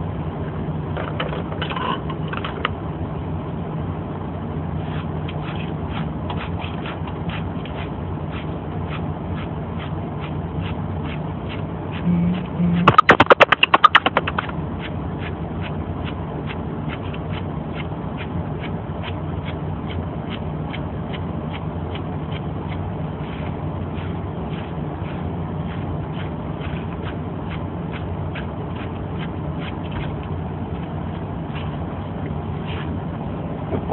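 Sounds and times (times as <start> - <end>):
low hum: 0.0 - 33.9
loud rapid rattling pulses: 4.8 - 15.7, 20.7 - 30.2.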